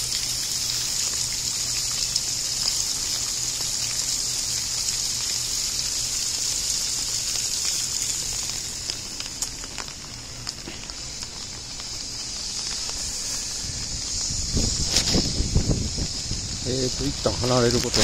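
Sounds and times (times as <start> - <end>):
steady rain hiss: 0.0 - 18.0
raindrops tapping: 6.4 - 18.0.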